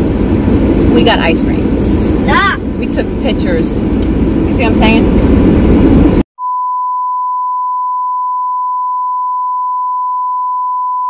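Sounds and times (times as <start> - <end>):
loud rumbling noise: 0.0 - 6.2.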